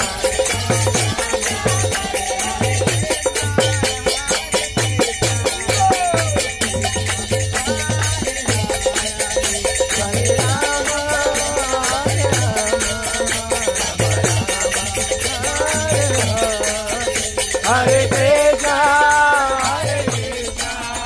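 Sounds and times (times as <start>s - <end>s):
group singing a chant: 0.0s - 21.0s
hand cymbals ringing: 0.0s - 21.0s
hands clapping in rhythm: 5.0s - 16.4s.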